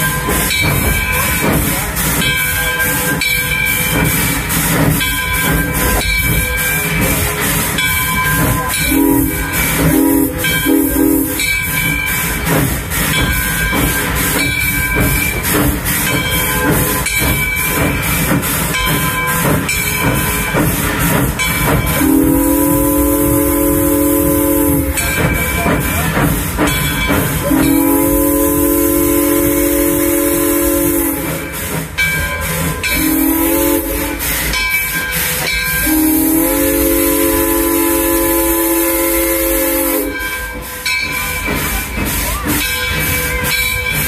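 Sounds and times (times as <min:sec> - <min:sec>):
moving train hiss and rumble: 0:00.0 - 0:44.0
steam locomotive whistle blasts: 0:06.6 - 0:12.4, 0:21.9 - 0:25.5, 0:27.4 - 0:31.8, 0:32.8 - 0:41.2.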